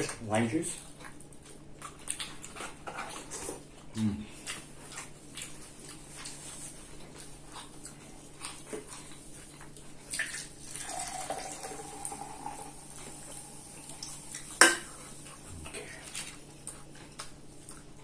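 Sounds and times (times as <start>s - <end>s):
drink pouring into a cup: 10.2s - 14.5s.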